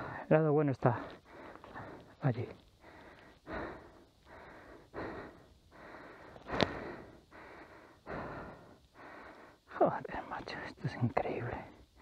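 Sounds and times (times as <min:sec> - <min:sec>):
person breathing hard: 0:00.0 - 0:00.2, 0:01.0 - 0:09.7.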